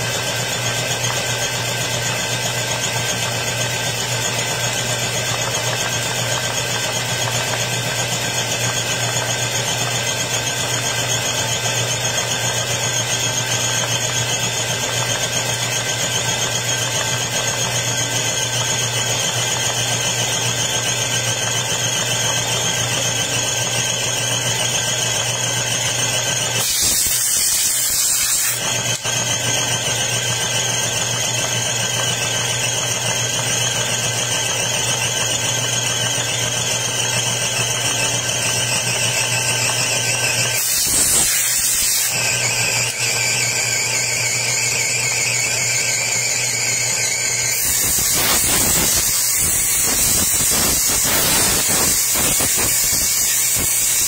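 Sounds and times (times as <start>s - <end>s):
air compressor whine: 0.0s - 54.0s
blow gun air hissing: 26.6s - 29.0s, 40.5s - 42.2s, 47.5s - 54.0s.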